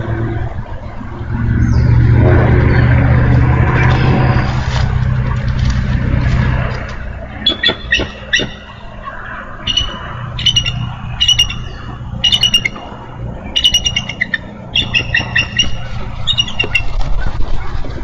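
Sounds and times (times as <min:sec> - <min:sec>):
wind rumble: 0:00.0 - 0:18.0
eagle chattering calls: 0:07.4 - 0:16.9.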